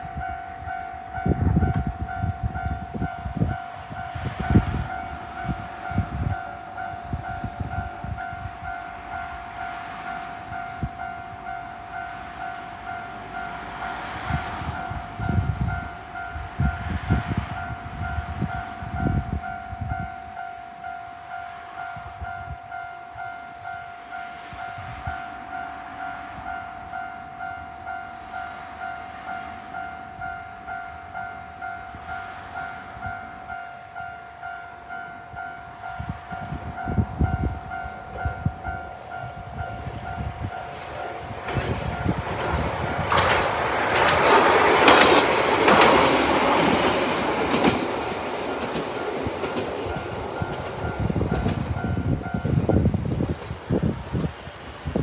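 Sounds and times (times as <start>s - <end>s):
diesel train passing: 0.0s - 55.0s
wheels clattering on track: 41.3s - 52.0s.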